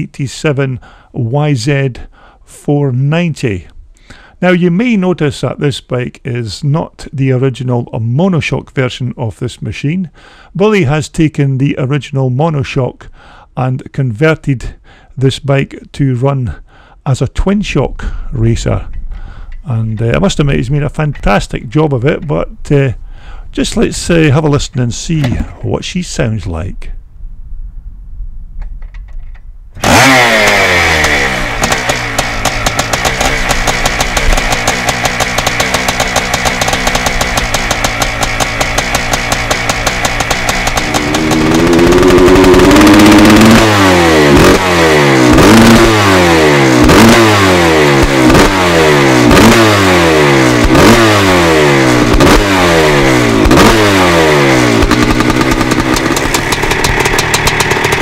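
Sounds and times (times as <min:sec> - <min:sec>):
two-stroke motorcycle engine revving: 0:29.8 - 0:58.0.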